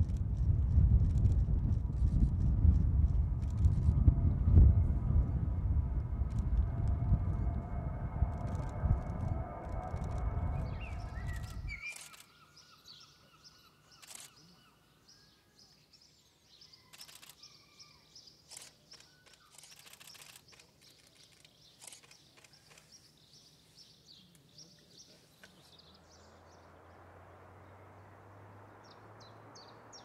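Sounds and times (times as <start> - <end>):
loud low droning rumble: 0.0 - 11.8
faint bird chirps: 9.6 - 26.4.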